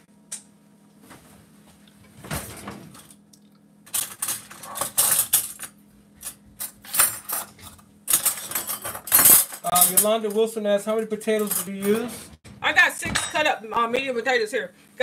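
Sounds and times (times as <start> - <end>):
metal cutlery clinking: 3.9 - 10.5, 11.2 - 12.2.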